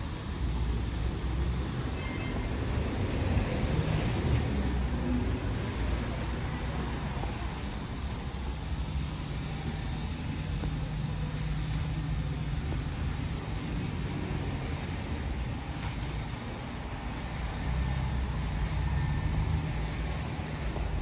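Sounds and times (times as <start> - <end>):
traffic rumble: 0.0 - 21.0
vehicle engine hum: 0.0 - 21.0.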